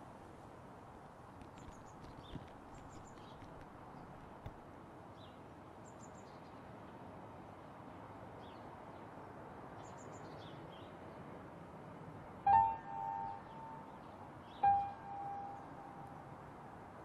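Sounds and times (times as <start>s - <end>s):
outdoor background hush: 0.0s - 7.0s, 8.4s - 17.0s
faint taps: 1.4s - 4.6s
small birds chirping: 1.5s - 4.2s.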